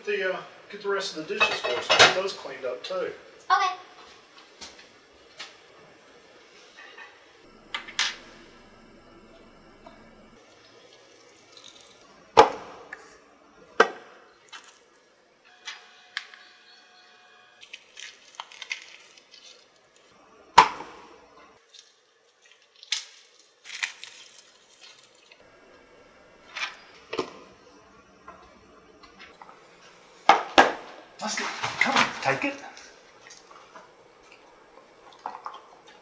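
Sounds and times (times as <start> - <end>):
dishes and utensils clinking: 1.4 - 2.2.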